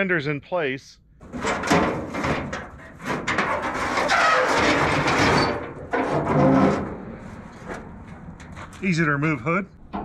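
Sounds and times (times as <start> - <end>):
sheet metal scraping and rubbing: 1.2 - 7.9.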